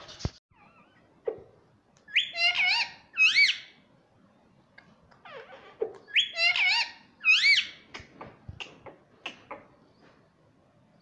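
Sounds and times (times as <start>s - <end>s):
parakeet chirping: 2.1s - 3.8s, 5.2s - 7.9s.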